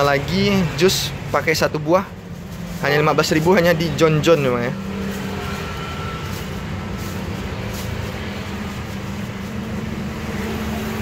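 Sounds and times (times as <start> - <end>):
road traffic hum: 0.0 - 11.0.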